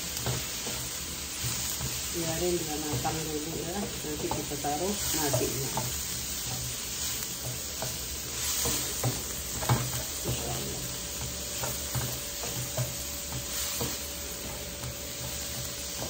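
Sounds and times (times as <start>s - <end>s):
vegetables sizzling in a wok: 0.0s - 16.0s
spatula scraping and tapping pan: 0.1s - 16.0s.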